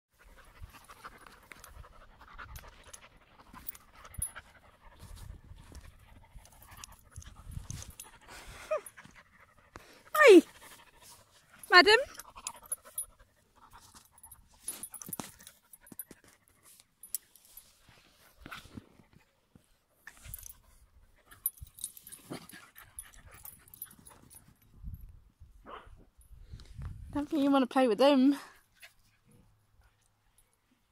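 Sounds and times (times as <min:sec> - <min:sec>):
dogs panting: 0:00.2 - 0:17.0, 0:20.1 - 0:24.6.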